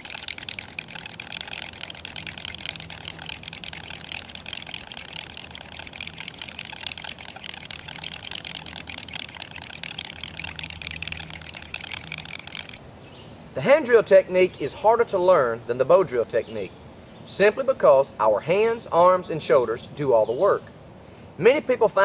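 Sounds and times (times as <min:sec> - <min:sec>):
hand drill grinding in wood: 0:00.0 - 0:12.8.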